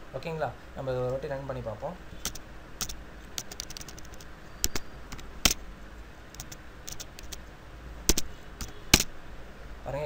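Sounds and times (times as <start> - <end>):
computer keyboard typing: 2.2 - 5.6, 6.3 - 7.4, 8.1 - 9.1.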